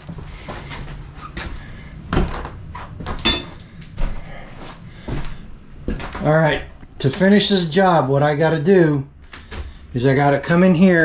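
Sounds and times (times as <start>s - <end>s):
scuffing handling noise: 0.0s - 7.4s
footsteps: 0.0s - 7.6s.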